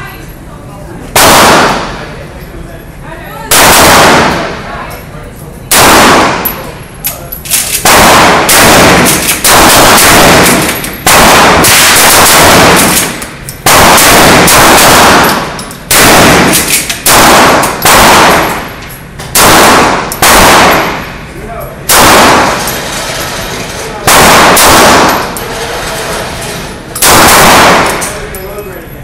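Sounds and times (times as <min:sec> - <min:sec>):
handgun shots with echo: 0:01.2 - 0:02.0, 0:03.5 - 0:04.6, 0:05.7 - 0:06.7, 0:07.5 - 0:18.7, 0:19.3 - 0:21.1, 0:21.9 - 0:22.8, 0:24.0 - 0:25.4, 0:27.0 - 0:28.2.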